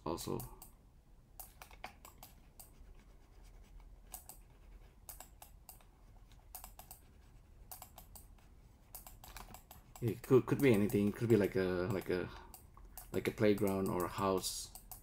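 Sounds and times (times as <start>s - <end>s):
computer keyboard clicking: 1.4s - 2.7s, 4.1s - 4.4s, 5.1s - 5.9s, 6.5s - 7.0s, 7.7s - 8.3s, 8.9s - 15.0s.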